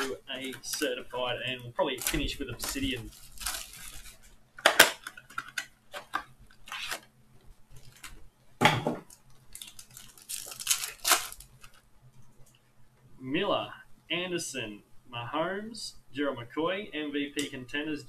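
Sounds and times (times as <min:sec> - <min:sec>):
foil packs crinkling: 0:00.0 - 0:01.0, 0:01.8 - 0:07.1, 0:07.8 - 0:08.2, 0:09.5 - 0:11.8
pack tearing open: 0:01.9 - 0:07.1, 0:09.5 - 0:11.8.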